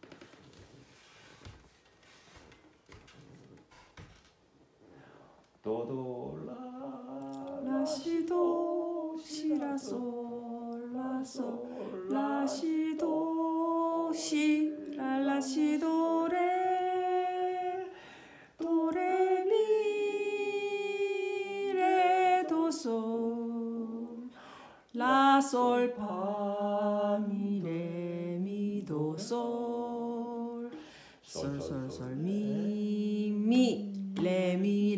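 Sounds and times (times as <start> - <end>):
person singing solo melody: 5.6 - 18.0, 18.6 - 24.3, 25.0 - 34.9.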